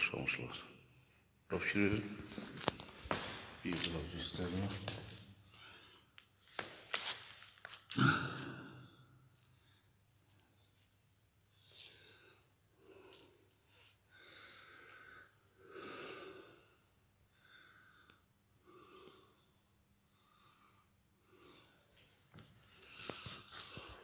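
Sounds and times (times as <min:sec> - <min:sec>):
soft breathing: 0:09.4 - 0:24.0.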